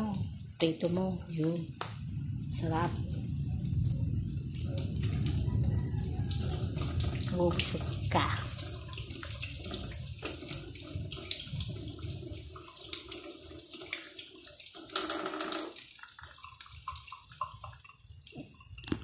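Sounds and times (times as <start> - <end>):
tap running into a sink: 14.8 - 19.0.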